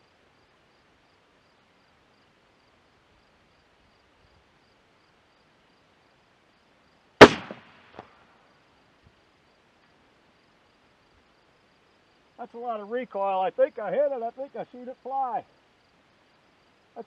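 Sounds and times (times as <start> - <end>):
rifle shot: 7.2 - 8.1.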